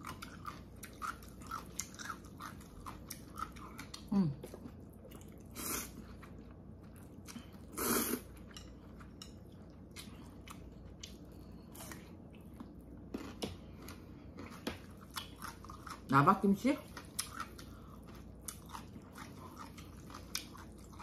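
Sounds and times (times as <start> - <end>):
wet chewing: 0.0 - 16.1, 16.8 - 21.0
person slurping noodles: 7.7 - 8.2.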